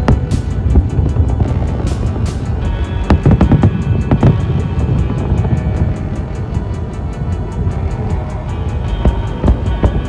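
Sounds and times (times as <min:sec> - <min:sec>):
deep thumps: 0:00.0 - 0:06.1
music with fast beat: 0:00.0 - 0:10.0.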